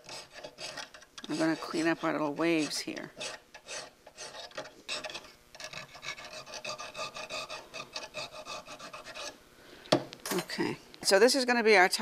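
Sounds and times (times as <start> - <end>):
file rasping on metal: 0.0 - 9.4.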